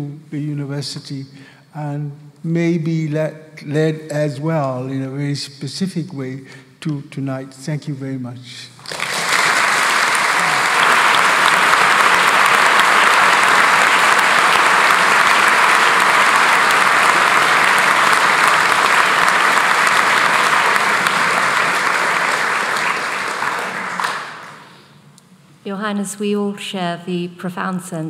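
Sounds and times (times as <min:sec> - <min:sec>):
audience applauding: 0:08.8 - 0:24.8.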